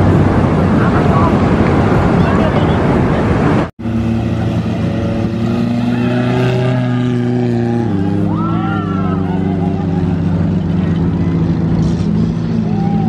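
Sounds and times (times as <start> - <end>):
wind noise on microphone: 0.0 - 3.7
vehicle engine running: 0.0 - 13.0.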